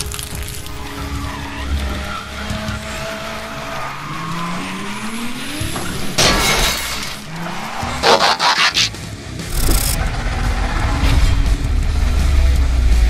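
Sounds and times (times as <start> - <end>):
background music: 0.0 - 6.0
tyres skidding: 0.0 - 13.0
car engine revving: 0.8 - 13.0.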